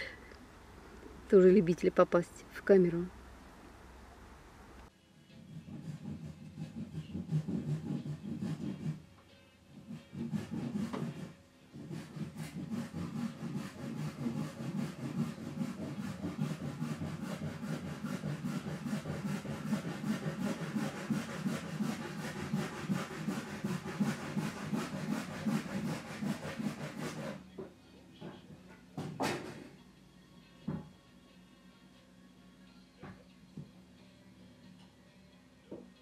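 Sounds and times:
saw cutting through wood: 0:05.6 - 0:09.0, 0:09.8 - 0:27.4.

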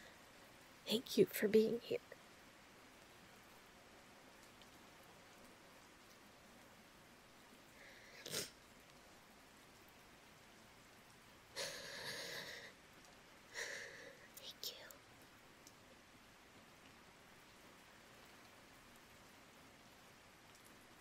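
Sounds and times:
faint room hiss: 0:00.0 - 0:21.0
woman sniffing: 0:08.2 - 0:08.5.

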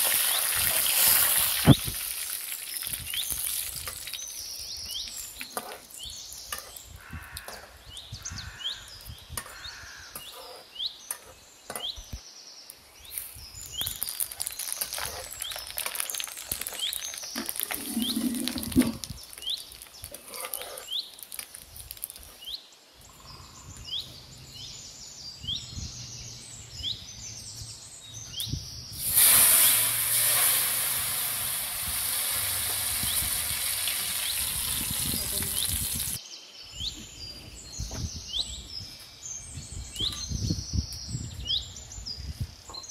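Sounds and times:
vegetables hitting hot oil sizzle: 0:00.0 - 0:04.4, 0:13.8 - 0:20.2, 0:29.0 - 0:36.2
spices sizzling in hot oil: 0:00.0 - 0:07.0, 0:13.1 - 0:22.4, 0:29.0 - 0:36.2.

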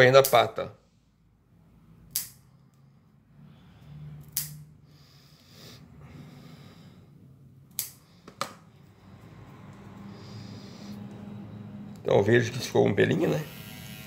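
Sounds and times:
nail clippers snipping: 0:02.1 - 0:02.4, 0:04.2 - 0:04.6, 0:07.7 - 0:08.0.

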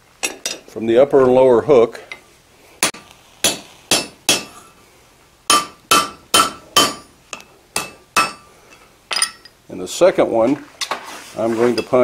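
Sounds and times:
hammer ringing on hot steel: 0:02.8 - 0:04.7, 0:05.5 - 0:08.5.

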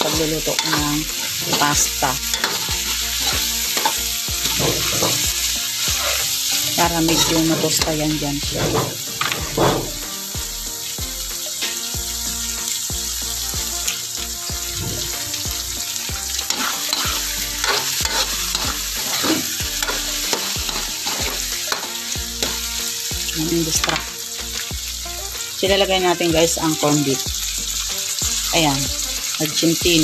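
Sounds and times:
spatula scraping a pan: 0:00.0 - 0:10.1, 0:14.5 - 0:22.9
food sizzling in hot oil: 0:00.0 - 0:30.0.

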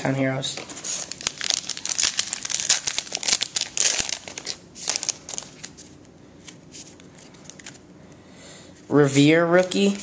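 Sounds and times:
wrapper crinkling: 0:00.8 - 0:05.9.

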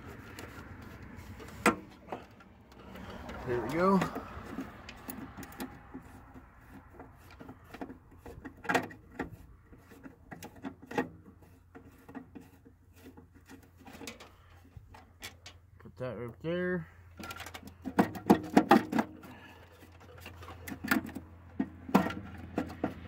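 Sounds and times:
screwdriver clicking and scraping: 0:00.0 - 0:15.5.

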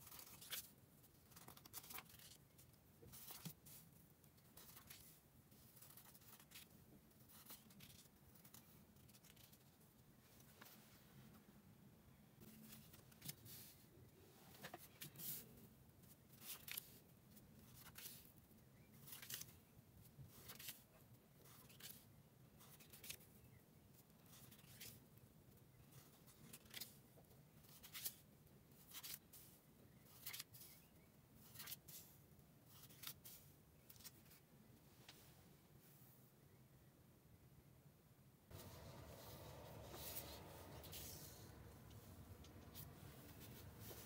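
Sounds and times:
paper sheets rustling on table: 0:01.3 - 0:02.4, 0:38.5 - 0:44.0.

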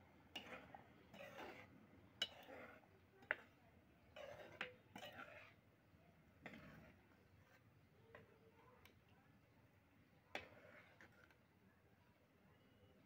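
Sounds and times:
spoon scraping thick curry: 0:00.3 - 0:05.7, 0:06.4 - 0:08.3, 0:10.3 - 0:11.5
spoon clinking on metal pan: 0:02.2 - 0:02.6.

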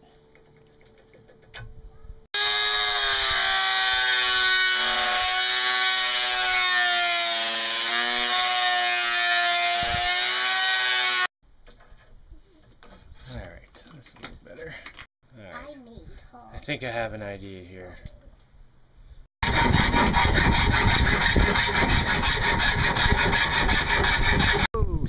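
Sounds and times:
rotary tool grinding metal: 0:19.4 - 0:24.7.

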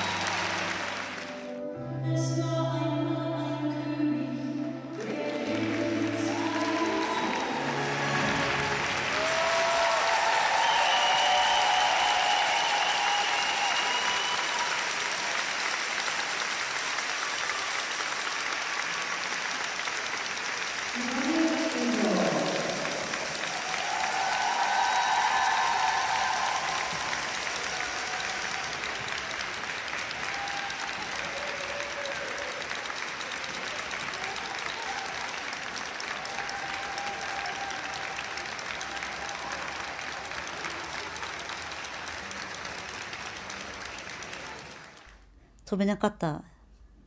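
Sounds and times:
audience applauding: 0:00.0 - 0:01.6, 0:04.9 - 0:45.3.

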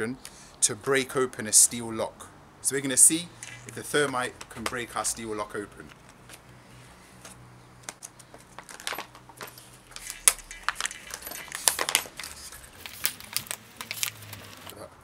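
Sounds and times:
plastic packaging crinkling: 0:07.9 - 0:14.8.

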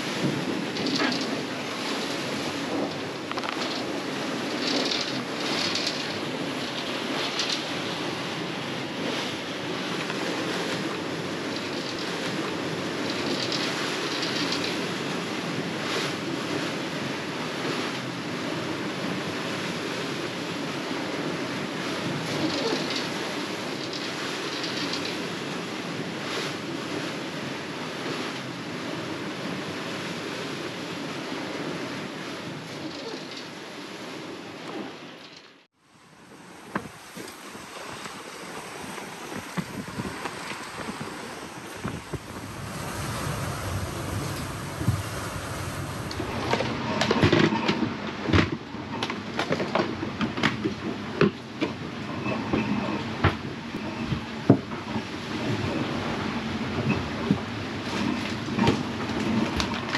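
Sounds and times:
rushing water and wind: 0:00.0 - 0:59.9
galley clunks and rattles: 0:00.2 - 0:02.0
water hissing past a boat: 0:36.1 - 0:47.0
wind rushing: 0:36.2 - 0:48.8
wind buffeting microphone: 0:36.2 - 0:59.9.

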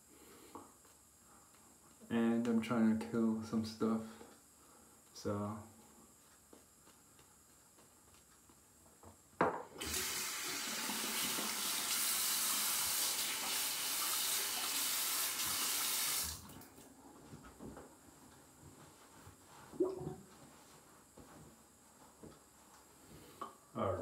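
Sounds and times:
water running into sink: 0:09.8 - 0:16.6.

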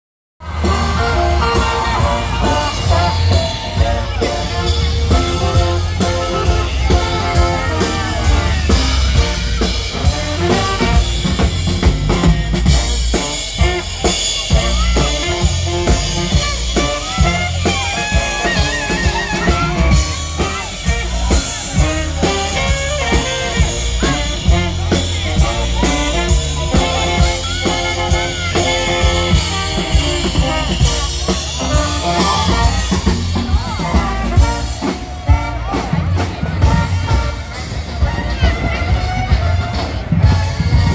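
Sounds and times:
drum kit steady beat: 0:00.4 - 0:40.9
heavy bass line: 0:00.4 - 0:40.9.

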